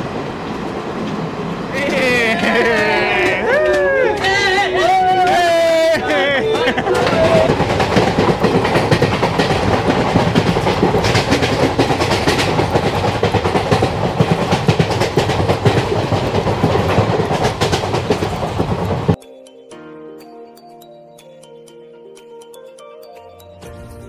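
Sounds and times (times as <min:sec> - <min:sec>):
train wheels clattering over rail joints: 0:00.0 - 0:19.2
wind and train running gear rushing: 0:00.0 - 0:19.2.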